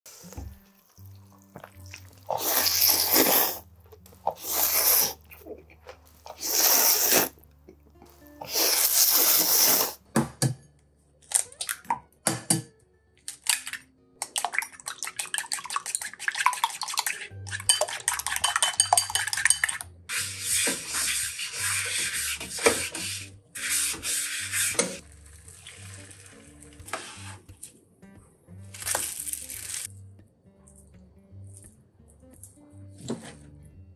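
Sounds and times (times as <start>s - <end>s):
soft background music: 0.1s - 33.9s
eggs cracked against a bowl: 13.2s - 16.0s
chopsticks beating eggs in a bowl: 14.3s - 25.0s.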